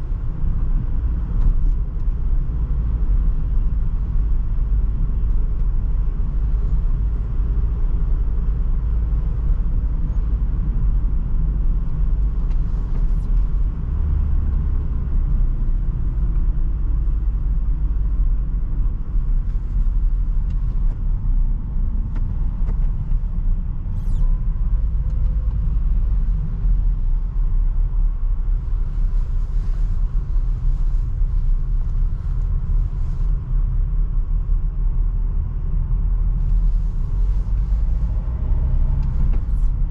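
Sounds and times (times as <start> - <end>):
engine and tyre rumble: 0.0 - 39.9.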